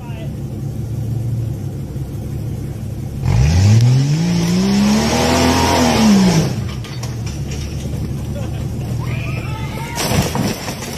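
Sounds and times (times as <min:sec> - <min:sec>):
engine revving hard: 0:03.2 - 0:06.7.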